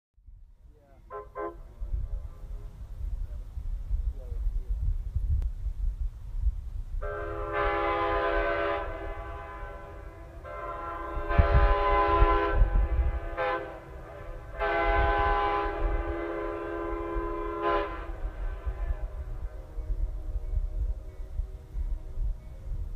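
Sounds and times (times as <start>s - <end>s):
train horn chord blasts: 1.0s - 2.0s, 7.0s - 22.9s.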